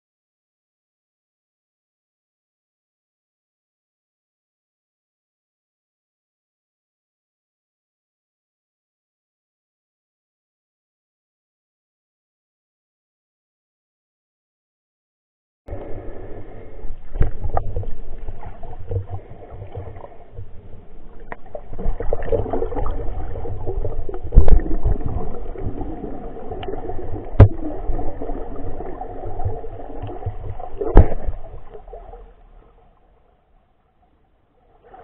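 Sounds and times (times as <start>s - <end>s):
underwater churning rumble: 15.7s - 32.8s.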